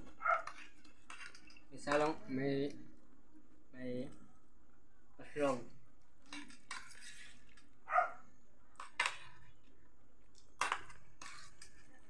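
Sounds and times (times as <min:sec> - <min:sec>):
forks scraping metal tray: 0:00.4 - 0:02.2, 0:06.3 - 0:07.6, 0:10.6 - 0:11.9.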